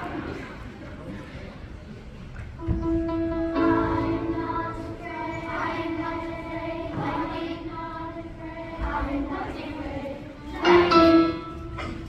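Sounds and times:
children's choir singing: 0:02.6 - 0:12.0.

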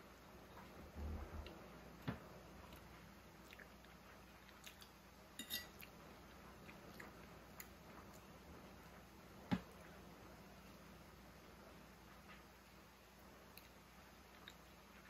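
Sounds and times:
faint chewing: 0:02.6 - 0:08.4, 0:13.4 - 0:15.0
fork clinking on plate: 0:05.4 - 0:05.9.

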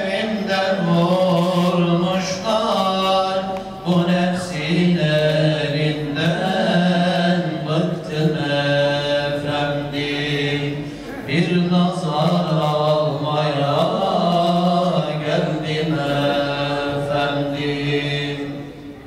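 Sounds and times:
man chanting a prayer: 0:00.0 - 0:18.6
breaths: 0:10.8 - 0:11.3.

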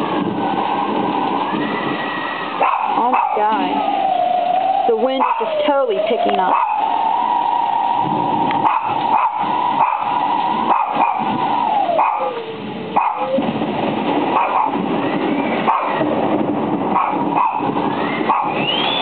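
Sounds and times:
rain: 0:00.0 - 0:19.0
wind: 0:00.0 - 0:19.0
dog howling: 0:01.4 - 0:13.5, 0:16.9 - 0:19.0.

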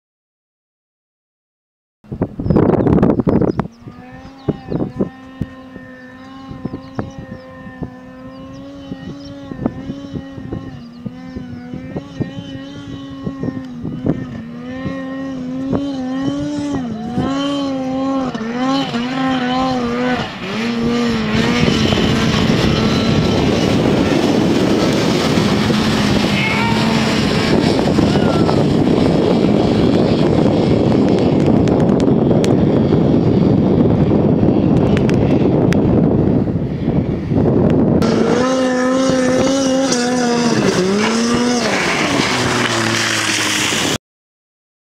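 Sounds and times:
snowmobile engine revving: 0:03.7 - 0:44.0
loud steady rushing noise: 0:14.5 - 0:44.0.

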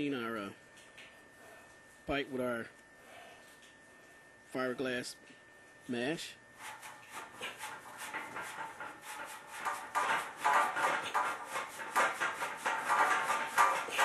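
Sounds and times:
abrasive mesh rasping copper pipe: 0:06.6 - 0:14.0.

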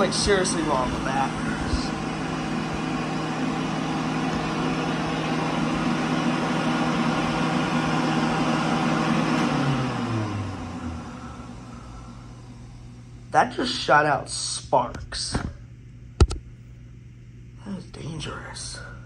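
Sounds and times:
hand dryer running: 0:00.0 - 0:12.7.

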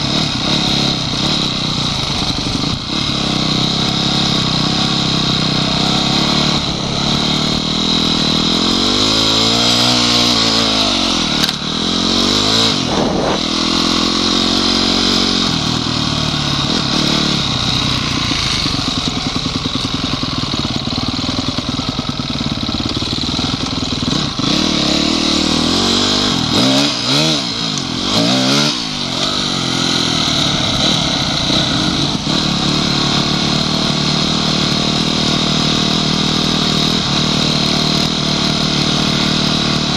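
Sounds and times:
motorcycle engine revving: 0:00.0 - 0:39.9.

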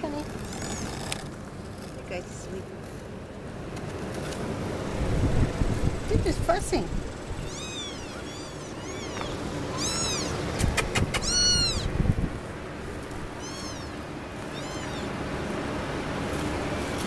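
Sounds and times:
kittens mewing: 0:07.3 - 0:12.1, 0:13.3 - 0:15.2.

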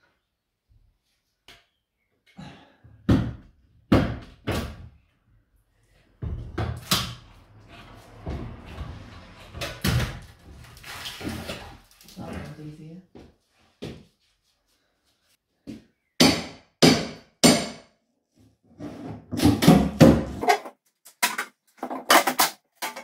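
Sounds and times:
rough scraping noise: 0:07.1 - 0:12.3.

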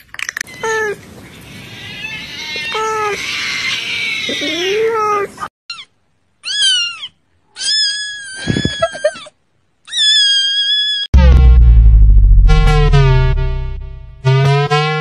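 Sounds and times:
kitten meowing: 0:05.7 - 0:09.0, 0:09.9 - 0:11.1.

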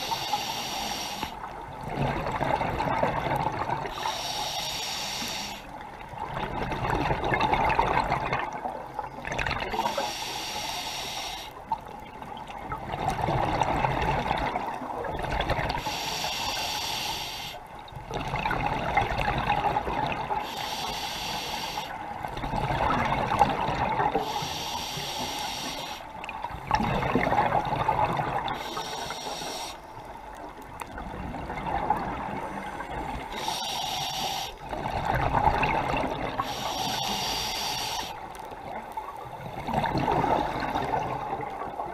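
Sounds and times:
regulator inhale hiss: 0:00.0 - 0:01.6, 0:03.9 - 0:05.8, 0:09.7 - 0:11.7, 0:15.8 - 0:17.7, 0:20.4 - 0:22.1, 0:24.1 - 0:26.2, 0:28.5 - 0:30.1, 0:33.3 - 0:34.8, 0:36.4 - 0:38.6
exhaled bubbles burbling: 0:01.8 - 0:03.9, 0:06.2 - 0:09.9, 0:12.2 - 0:15.8, 0:18.0 - 0:20.4, 0:22.2 - 0:24.2, 0:26.3 - 0:28.6, 0:30.9 - 0:33.3, 0:34.6 - 0:36.5, 0:38.8 - 0:41.9.

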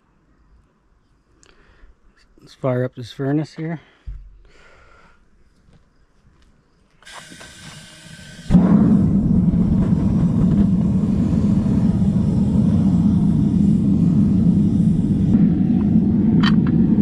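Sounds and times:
gas hissing: 0:07.0 - 0:17.0
burner roaring: 0:07.2 - 0:17.0.

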